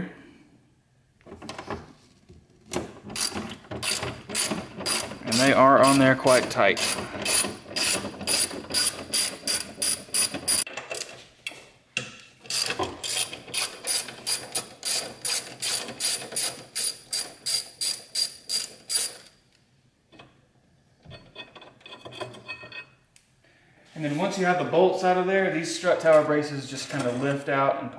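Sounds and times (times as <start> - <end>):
hand ratchet clicking: 3.1 - 11.1, 12.5 - 19.3.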